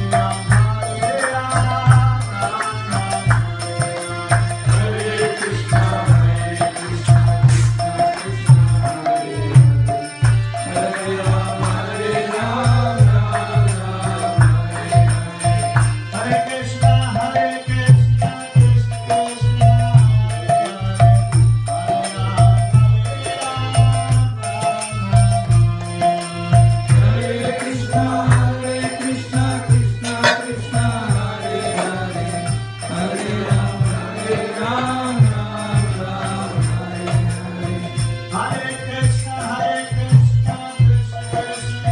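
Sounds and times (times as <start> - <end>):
hand percussion: 0.0 - 41.9
steady drum beat: 0.0 - 41.9
voices chanting: 10.6 - 15.4, 26.9 - 38.5.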